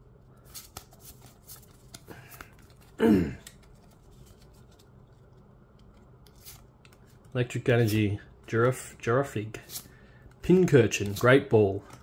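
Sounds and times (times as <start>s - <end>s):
trading cards being handled: 0.3s - 12.0s.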